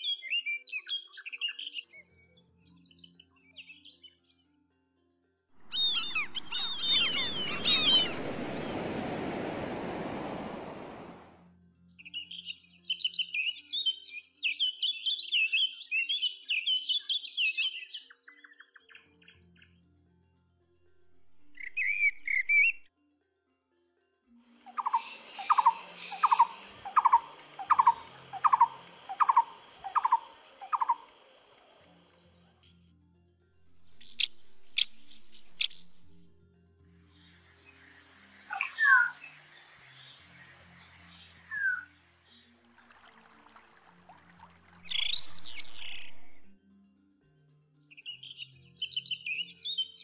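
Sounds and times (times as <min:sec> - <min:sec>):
high quick bird chirps: 0:05.6 - 0:10.3, 0:21.4 - 0:22.8, 0:33.8 - 0:36.2, 0:38.5 - 0:42.4, 0:44.8 - 0:46.5
sea surf rushing: 0:05.6 - 0:11.4.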